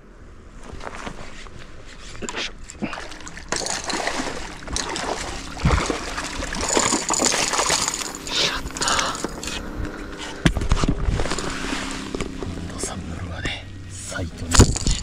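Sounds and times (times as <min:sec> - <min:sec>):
fish thrashing and splashing: 0:02.7 - 0:09.6.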